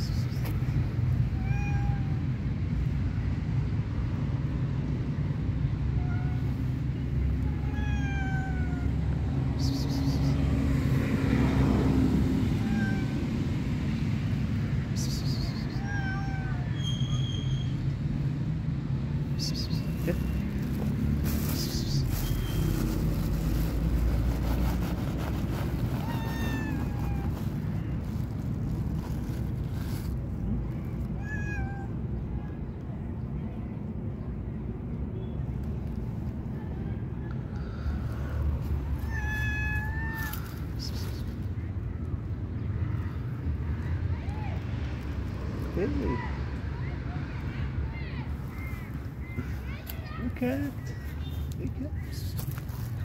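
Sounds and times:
constant low rumble: 0.0 - 53.0
cat meowing: 1.3 - 2.3, 6.0 - 6.6, 7.4 - 9.1, 12.5 - 13.3, 15.4 - 17.0, 25.9 - 27.9, 31.0 - 32.0, 39.0 - 40.8.

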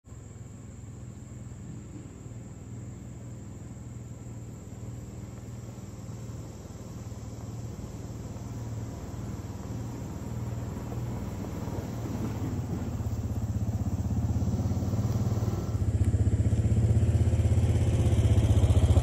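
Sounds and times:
vehicle engine droning: 0.0 - 19.0
insect trill: 0.1 - 19.0.

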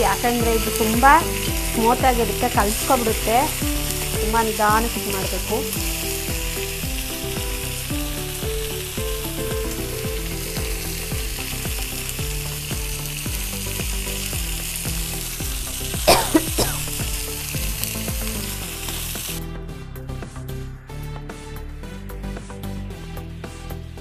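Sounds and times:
fish sizzling in hot oil: 0.0 - 19.4.

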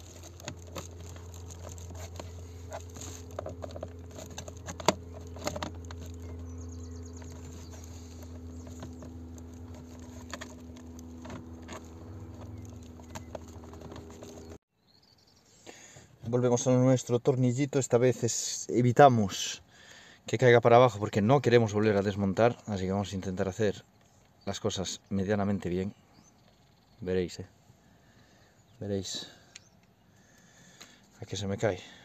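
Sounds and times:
steady low hum: 0.0 - 14.6.

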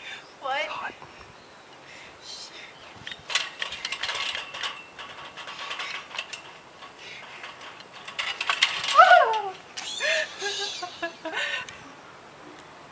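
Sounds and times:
chain-link fence rattling: 3.1 - 11.2
person crying out: 8.9 - 10.8.

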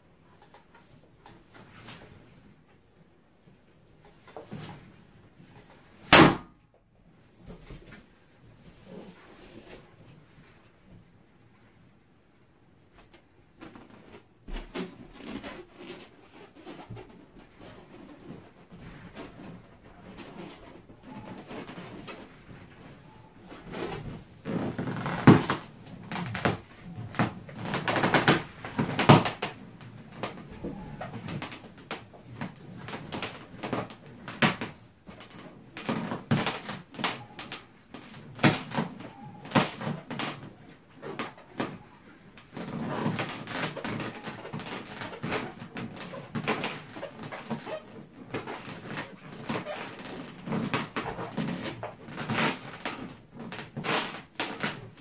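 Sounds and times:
thumps and creaks: 13.1 - 55.0
balloon squeaking and rubbing: 14.8 - 34.6, 35.3 - 55.0.

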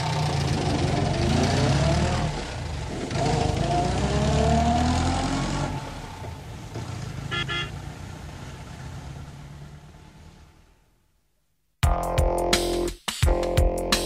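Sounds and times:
car engine revving: 0.0 - 10.8
car horn toots: 7.2 - 7.8.

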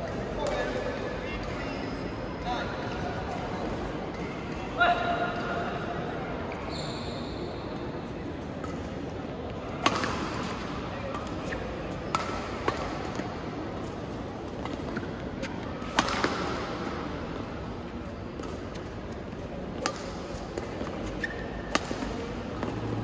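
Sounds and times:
sports hall hum: 0.0 - 23.0
shoe squeak: 6.6 - 7.7, 21.0 - 21.7
racket smacking shuttlecock: 9.8 - 17.0, 18.4 - 23.0.

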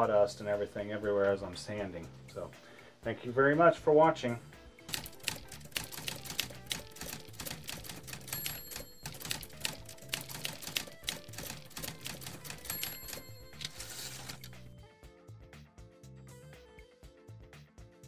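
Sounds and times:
background music: 0.0 - 18.0
typewriter bell ring: 4.9 - 14.6
typewriter key clacks: 4.9 - 14.6.

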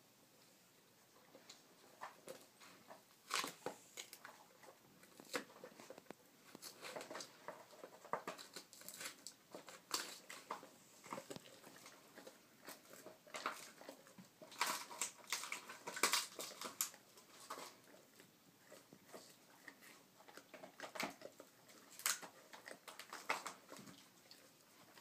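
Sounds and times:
dog chewing: 1.1 - 25.0.

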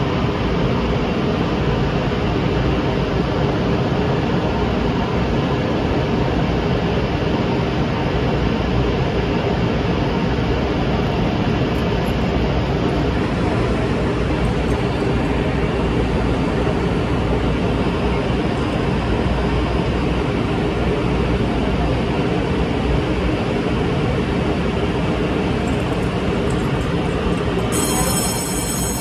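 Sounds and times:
electric train running noise: 12.4 - 21.7, 22.5 - 29.0
high-pitched electronic tone: 25.7 - 29.0.

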